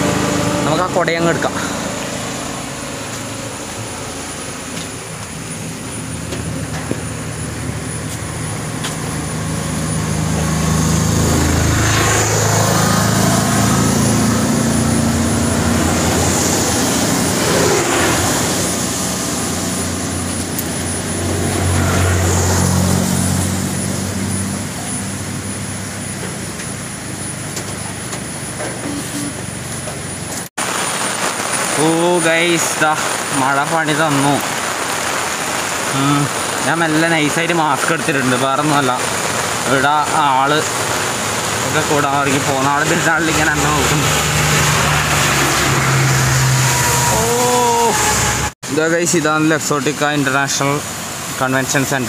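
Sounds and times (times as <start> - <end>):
road traffic passing: 0.0 - 52.0.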